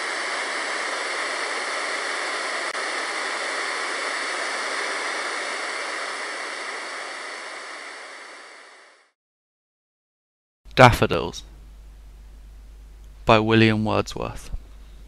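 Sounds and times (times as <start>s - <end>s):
steady hiss: 0.0s - 9.2s.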